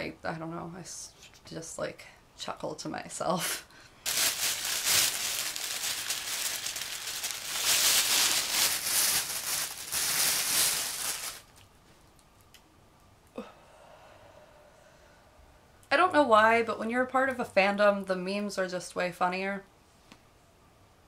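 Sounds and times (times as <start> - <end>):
plastic bag crinkling: 4.0 - 11.7.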